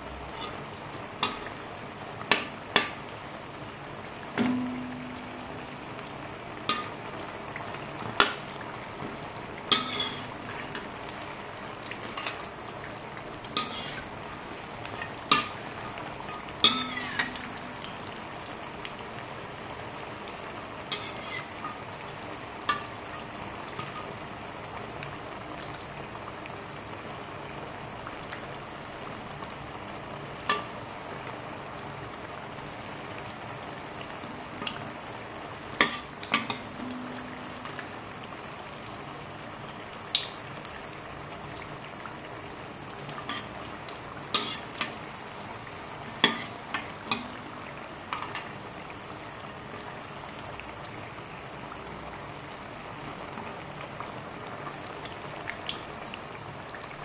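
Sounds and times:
oil sizzling in a wok: 0.0 - 57.0.

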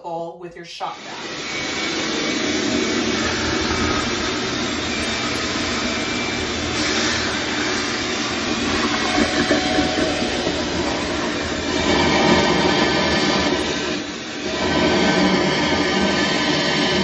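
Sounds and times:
shop vacuum sucking water: 0.9 - 17.0.

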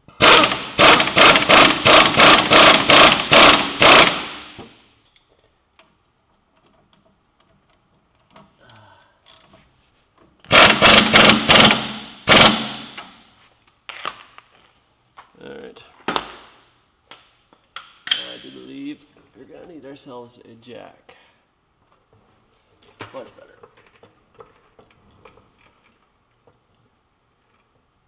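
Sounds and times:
pneumatic impact wrench bursts: 0.1 - 4.7, 10.5 - 13.1.

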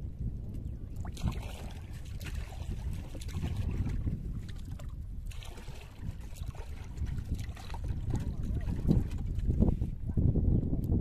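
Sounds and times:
wind rumble on microphone: 0.0 - 11.0
water splashing and dripping: 1.0 - 9.7.

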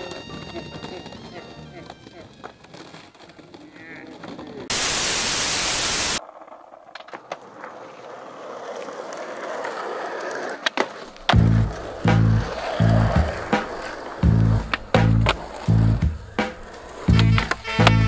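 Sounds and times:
skateboard wheels rolling on pavement: 0.0 - 18.0
skateboard clicks: 1.8 - 4.7, 6.2 - 18.0
static hiss burst: 4.7 - 6.2
music with heavy bass beat: 11.4 - 13.6, 14.2 - 16.5.

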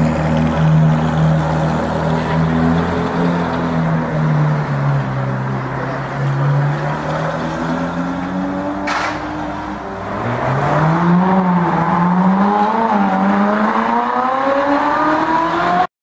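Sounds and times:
car engine accelerating: 0.0 - 15.9
short sharp noise: 8.8 - 9.4.

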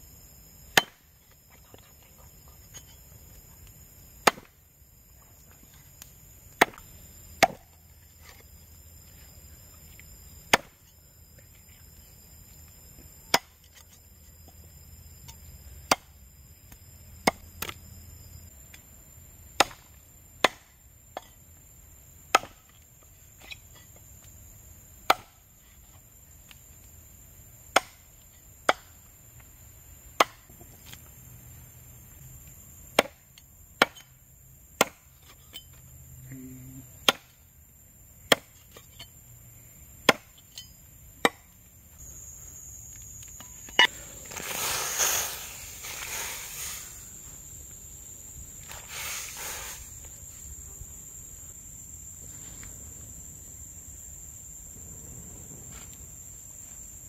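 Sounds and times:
cleaver chopping on wooden block: 19.6 - 21.3, 22.3 - 22.7, 25.1 - 25.4, 27.8 - 28.0, 30.2 - 30.5, 33.0 - 33.2, 33.8 - 34.1, 34.8 - 35.1, 37.0 - 37.3, 38.3 - 38.6, 40.1 - 40.4.

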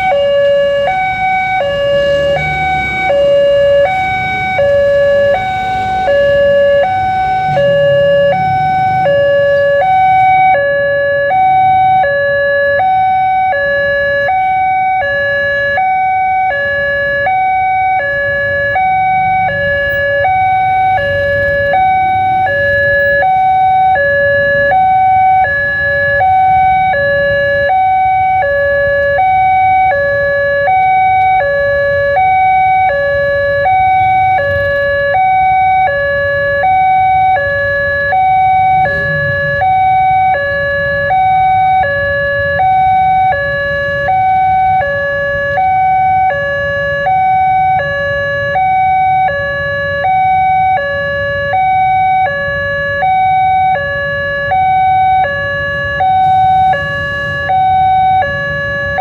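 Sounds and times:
idling road vehicles rumble: 0.0 - 59.0.

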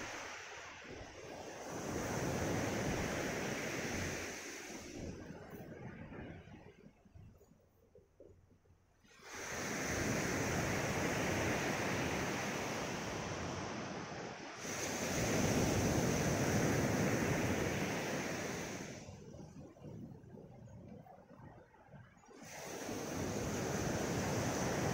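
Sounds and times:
surf washing up a pebbly shore: 0.0 - 5.5, 9.1 - 19.2, 22.4 - 24.9.

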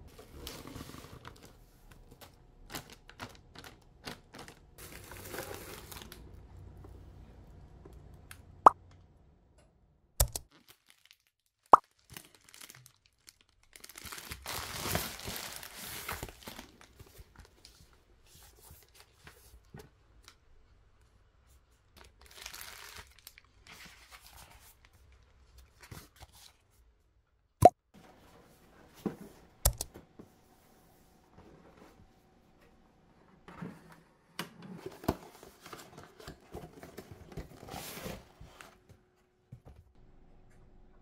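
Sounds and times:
packaging crinkling and rustling: 0.2 - 6.3, 10.4 - 18.0, 22.0 - 26.2.

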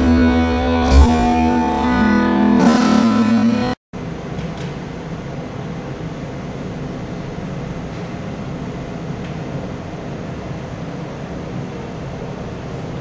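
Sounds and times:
low rumbling noise: 0.0 - 4.2.

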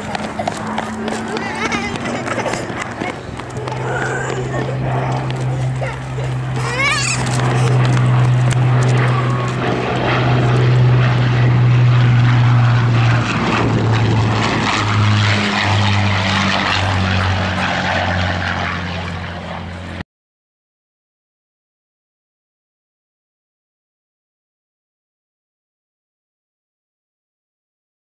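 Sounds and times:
aircraft engine flying past: 0.0 - 20.0.

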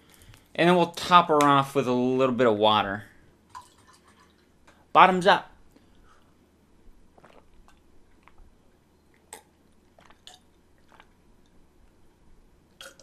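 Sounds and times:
person gulping drink: 7.1 - 11.6, 12.7 - 13.0.

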